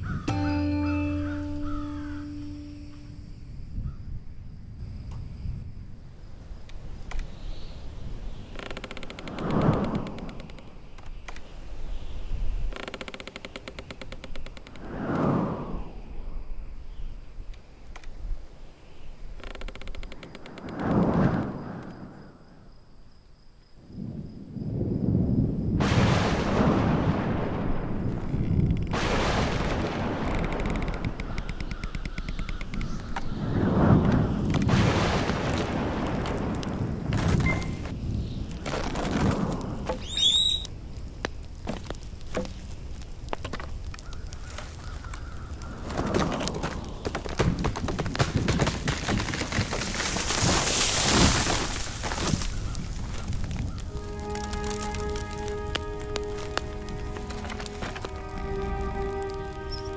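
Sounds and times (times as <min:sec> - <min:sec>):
thunder rumbling: 0:24.0 - 0:31.9, 0:32.9 - 0:40.8
sharp thunder crack: 0:24.8 - 0:31.4, 0:33.5 - 0:38.3
bird chirp: 0:40.0 - 0:40.7
faint wavering whistle: 0:40.0 - 0:40.7.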